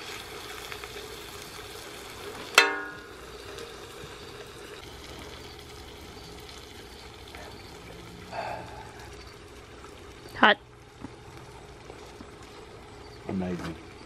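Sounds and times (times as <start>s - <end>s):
meat and vegetables sizzling: 0.0s - 14.0s
ringing metallic clang: 2.6s - 3.3s.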